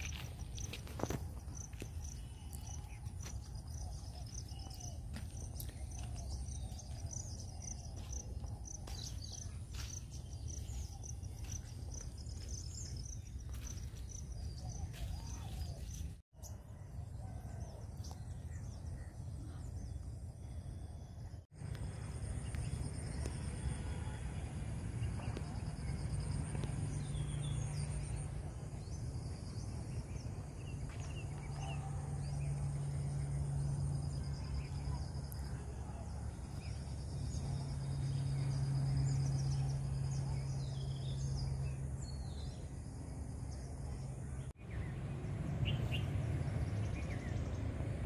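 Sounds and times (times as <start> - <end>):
insects chirping: 0.0 - 16.0, 18.4 - 48.0
footsteps on stony track: 0.0 - 16.2.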